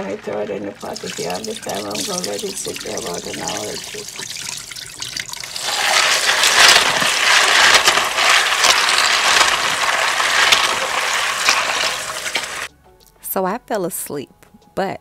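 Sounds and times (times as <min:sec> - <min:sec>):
tap running into bowl: 0:00.8 - 0:07.9
water splashing and churning: 0:00.8 - 0:12.7.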